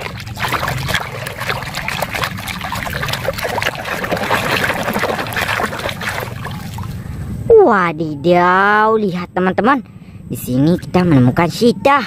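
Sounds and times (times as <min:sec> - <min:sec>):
hand splashing in basin water: 0:00.0 - 0:07.0.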